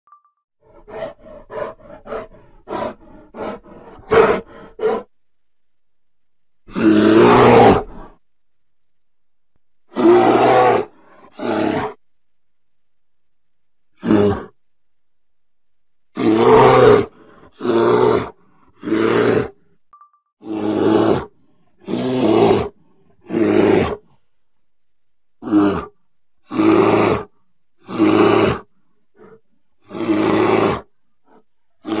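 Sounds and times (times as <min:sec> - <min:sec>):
faint growls: 0:00.6 - 0:05.2, 0:06.6 - 0:08.2, 0:09.9 - 0:12.0, 0:13.9 - 0:14.6, 0:16.1 - 0:19.8, 0:20.4 - 0:24.3, 0:25.4 - 0:32.0
deep animal roars: 0:06.7 - 0:08.2, 0:09.9 - 0:12.0, 0:16.2 - 0:19.6, 0:20.4 - 0:24.1, 0:25.4 - 0:32.0.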